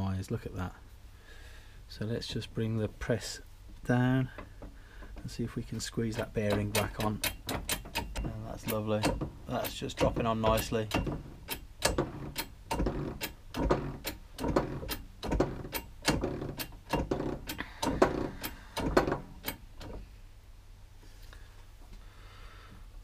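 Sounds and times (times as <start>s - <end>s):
hydraulic press clacking: 6.0s - 20.0s.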